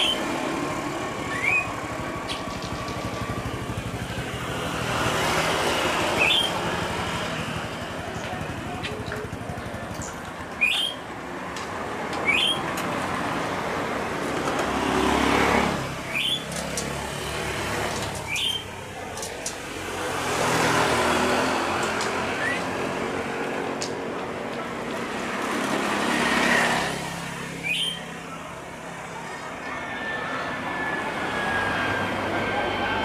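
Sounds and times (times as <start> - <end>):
passing road traffic: 0.0 - 33.0
bird chirping: 1.2 - 2.9, 6.2 - 6.6, 9.9 - 11.0, 12.2 - 12.6, 16.1 - 16.5, 18.3 - 18.7, 27.6 - 28.2
jet airliner approaching: 29.8 - 33.0.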